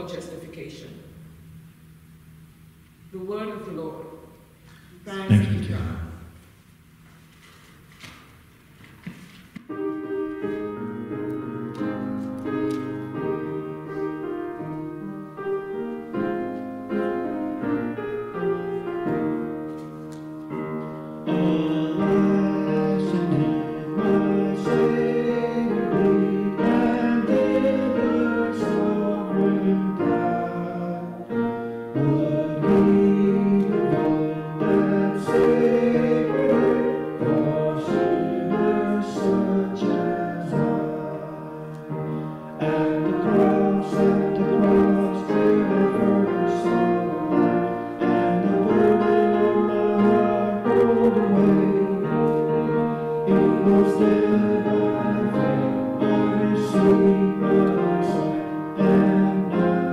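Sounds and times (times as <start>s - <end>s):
piano playing a hymn: 0.0s - 6.5s, 7.2s - 59.9s
people singing: 21.2s - 59.9s.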